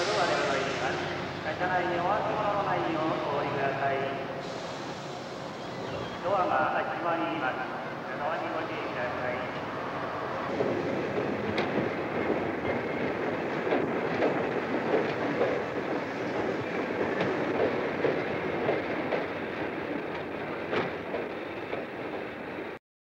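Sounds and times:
train rumble: 0.0 - 22.8
train wheels clacking on rail joints: 9.5 - 22.8.

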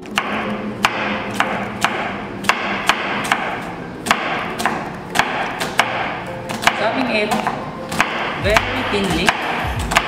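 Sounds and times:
knife slicing onion: 7.9 - 10.0.

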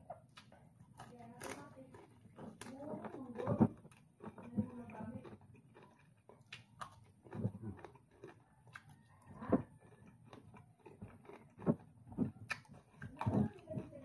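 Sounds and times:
man chewing with wet smacks: 0.0 - 14.0.

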